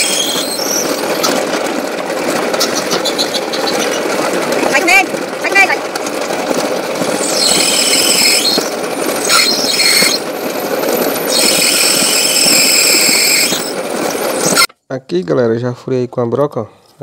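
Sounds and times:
drill bit squealing in metal: 0.0s - 1.4s, 2.6s - 4.1s, 7.2s - 10.3s, 11.0s - 14.7s
drill press running: 0.0s - 14.7s.

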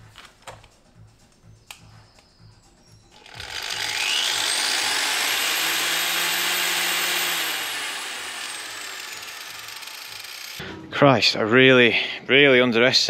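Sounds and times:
angle grinder whine: 3.1s - 10.6s.

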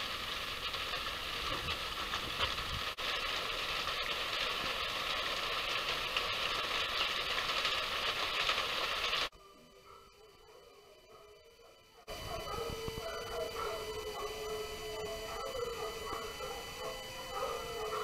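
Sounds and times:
steady hiss: 0.0s - 9.7s.

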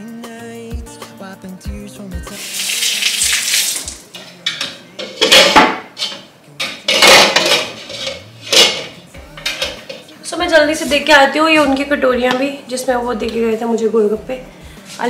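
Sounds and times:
pots and utensils clattering: 3.7s - 10.1s.

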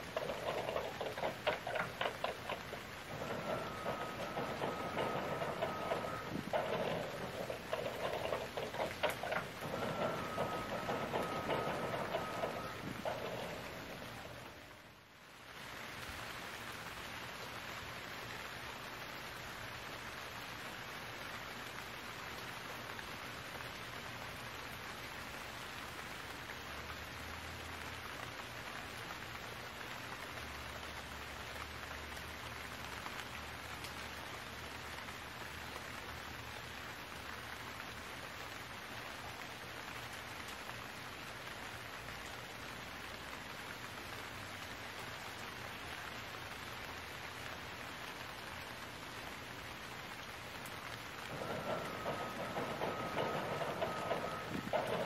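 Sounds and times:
loud whining noise: 0.0s - 14.5s
steady rain falling: 0.0s - 55.0s.

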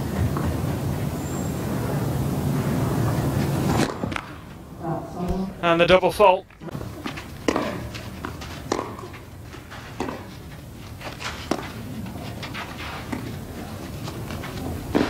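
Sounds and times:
tennis ball bouncing: 6.5s - 9.3s, 9.9s - 10.4s, 11.1s - 11.8s, 14.3s - 15.0s.

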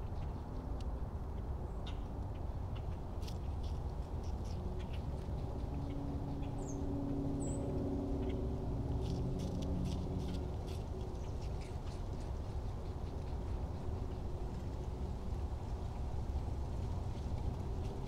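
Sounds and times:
low outdoor rumble: 0.0s - 18.0s
engine drone: 4.4s - 15.7s.

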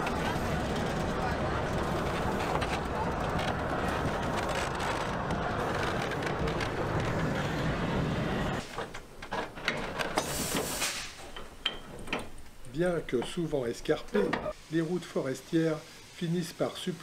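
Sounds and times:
steam locomotive running: 0.0s - 8.8s
high steam hiss: 10.2s - 11.3s, 14.5s - 17.0s.

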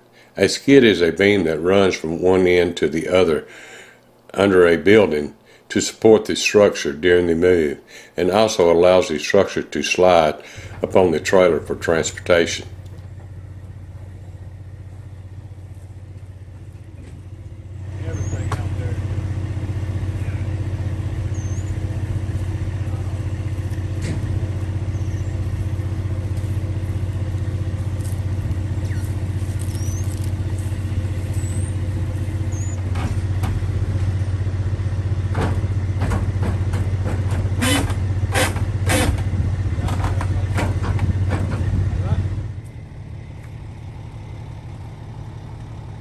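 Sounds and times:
diesel engine idling: 7.5s - 46.0s.

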